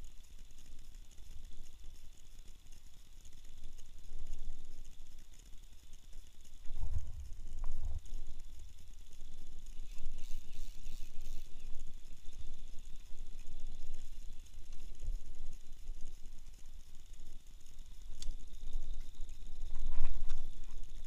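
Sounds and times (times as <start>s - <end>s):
fishing reel cranking: 0.0s - 21.0s
steady low rumble: 6.6s - 10.2s.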